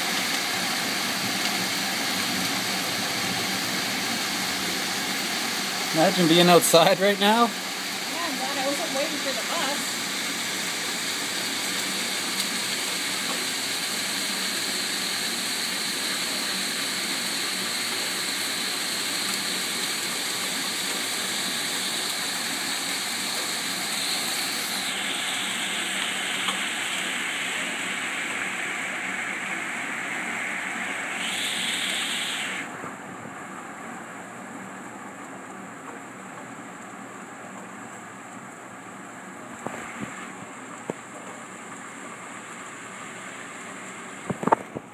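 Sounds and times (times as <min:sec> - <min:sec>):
heavy hail and rain falling: 0:00.0 - 0:31.9.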